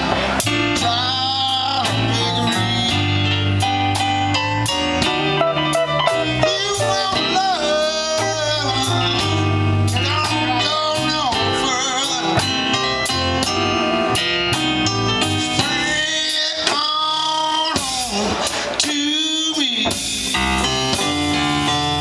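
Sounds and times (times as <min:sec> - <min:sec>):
guitar lead with bending notes: 0:00.0 - 0:16.0
live blues band: 0:00.0 - 0:22.0.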